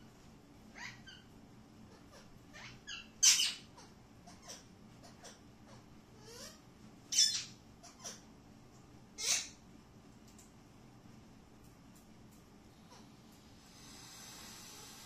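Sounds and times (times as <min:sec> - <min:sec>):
parakeet harsh screeches: 0:02.1 - 0:03.7, 0:06.2 - 0:08.2, 0:09.2 - 0:09.6
parakeets chirping and whistling: 0:02.6 - 0:03.7, 0:06.3 - 0:08.2.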